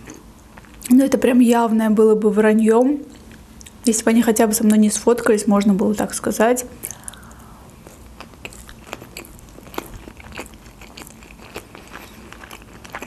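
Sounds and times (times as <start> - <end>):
close chewing with crackles: 0.0 - 0.9, 6.8 - 13.0.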